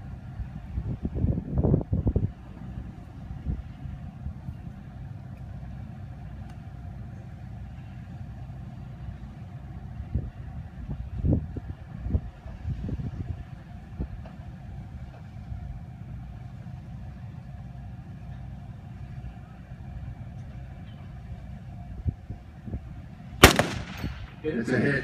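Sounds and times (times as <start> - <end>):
low wind rumble: 0.0 - 25.0
rifle shot: 23.4 - 24.4.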